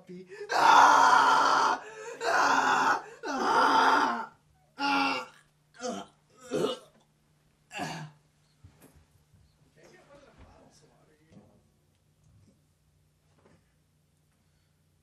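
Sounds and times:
person straining vocally: 0.3 - 6.9, 7.7 - 8.2.

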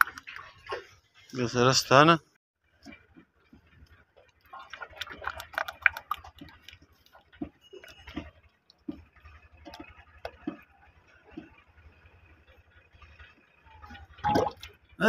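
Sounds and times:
oil glugging into metal funnel: 4.2 - 10.6, 14.0 - 14.8.

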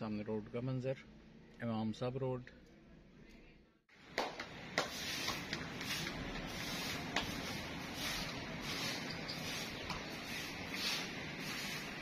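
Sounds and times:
rushing hiss: 4.9 - 12.0.

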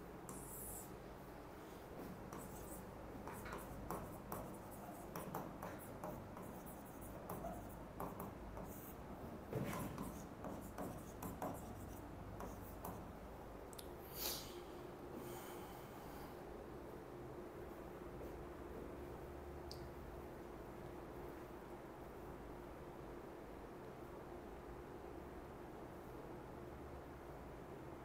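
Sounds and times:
low steady hum: 0.0 - 28.0
pen scratching while writing: 2.3 - 9.0, 9.6 - 13.1.

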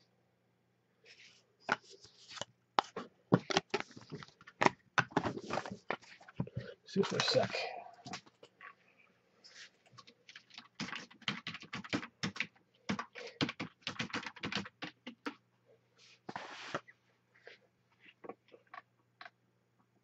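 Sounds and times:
typing on a keyboard: 10.3 - 15.4.

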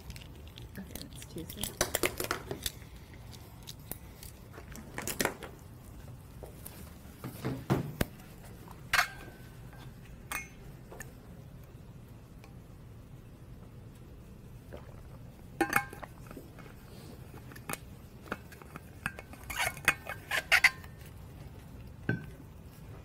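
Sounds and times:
pencils and papers handled at desks: 0.0 - 10.2
steady low hum: 0.0 - 23.0.

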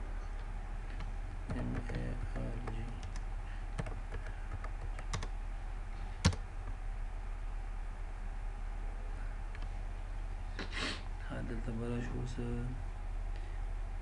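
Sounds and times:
computer keyboard clicks: 3.8 - 5.3.

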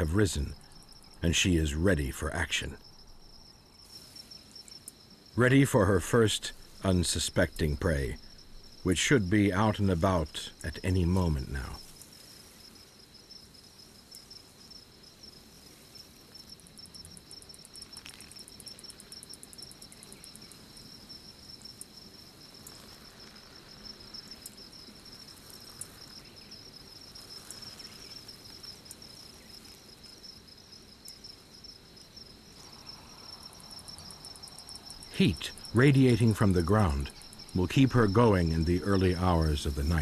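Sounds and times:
crickets chirping: 0.0 - 40.0
faint ticks: 4.6 - 5.0, 16.3 - 26.2, 31.0 - 31.3.

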